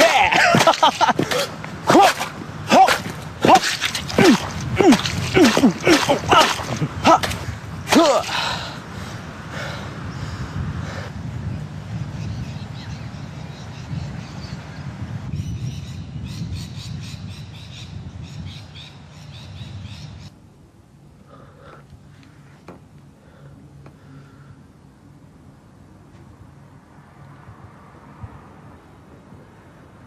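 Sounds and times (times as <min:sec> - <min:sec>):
low outdoor rumble: 0:00.0 - 0:15.4
birds chirping: 0:00.0 - 0:20.3.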